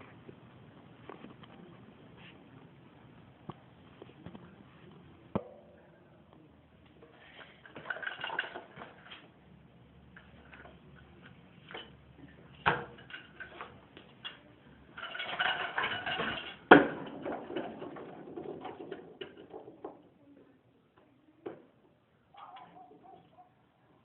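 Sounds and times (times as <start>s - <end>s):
scooter wheels rolling on concrete: 6.8s - 23.5s
scooter deck clacking: 10.2s - 20.1s.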